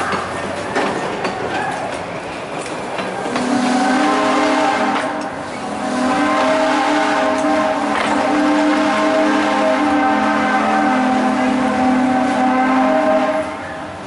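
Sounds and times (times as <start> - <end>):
train wheels clattering: 0.0 - 3.9, 4.5 - 10.0
steam locomotive chime whistle: 3.4 - 13.9.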